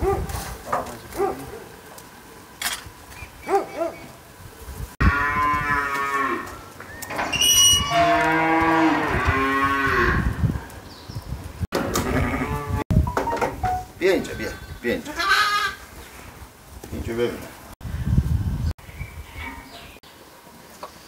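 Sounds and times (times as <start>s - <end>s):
cattle mooing: 5.0s - 6.5s, 7.8s - 10.3s, 11.9s - 12.8s.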